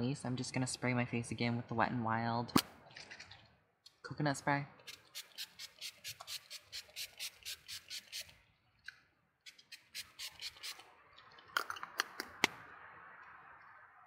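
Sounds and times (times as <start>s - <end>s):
spray bottle spritzing: 4.9s - 8.3s, 9.5s - 10.8s.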